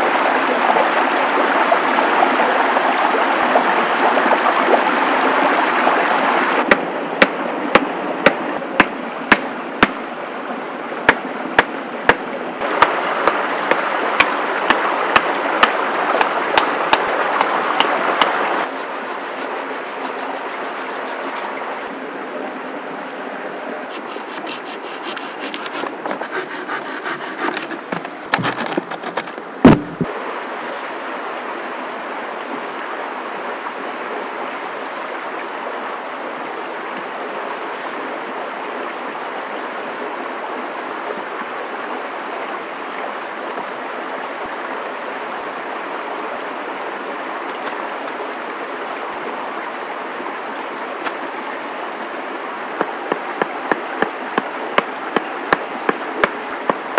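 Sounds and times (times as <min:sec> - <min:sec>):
steady rushing background noise: 0:06.2 - 0:30.3
sharp wooden knock: 0:06.7 - 0:10.0, 0:12.8 - 0:18.4, 0:24.0 - 0:30.1
wooden sticks rustling and clicking: 0:12.8 - 0:21.5, 0:23.9 - 0:30.1.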